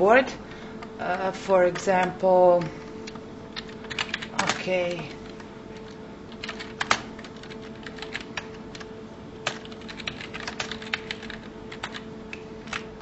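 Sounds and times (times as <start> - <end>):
faint steady hum: 0.0 - 13.0
keyboard keys clicking: 3.1 - 12.9.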